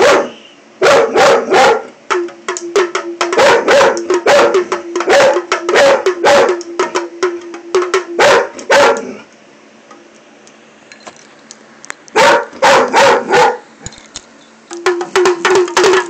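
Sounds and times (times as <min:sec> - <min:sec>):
dog barking: 0:00.0 - 0:01.9, 0:03.3 - 0:06.6, 0:08.2 - 0:09.2, 0:12.2 - 0:13.6
hand drum: 0:02.1 - 0:08.6, 0:14.7 - 0:16.0.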